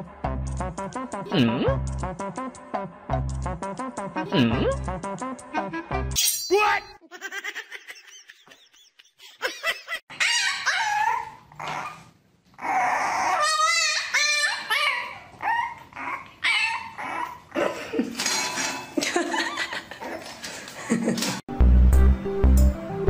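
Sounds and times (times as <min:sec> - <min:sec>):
puppies whining and yipping: 0:10.1 - 0:17.6.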